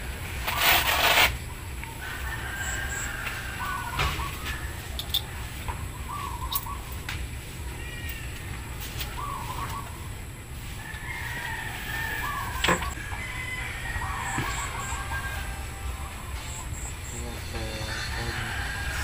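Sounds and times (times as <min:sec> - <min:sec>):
steady low rumble: 0:01.4 - 0:13.4
chickens clucking: 0:01.4 - 0:19.0.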